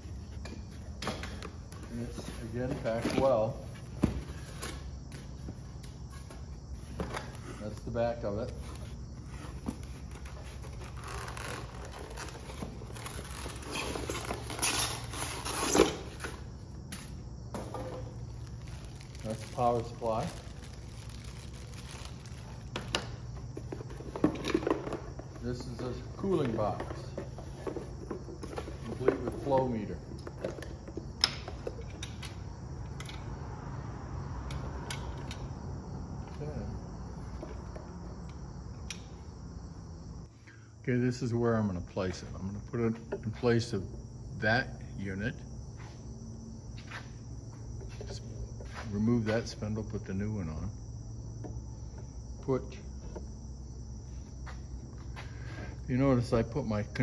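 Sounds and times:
insects chirping: 0.0s - 57.0s
cardboard and paper rustling: 8.6s - 16.4s, 17.6s - 23.0s.

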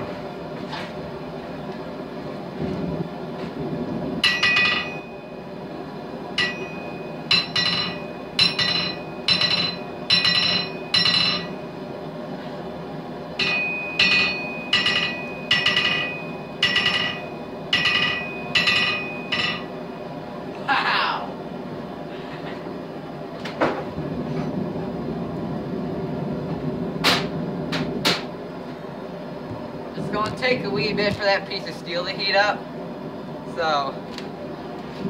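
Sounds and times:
forge roaring: 2.0s - 32.0s
hammer striking anvil: 4.2s - 5.2s, 6.4s - 11.6s, 13.4s - 19.7s.

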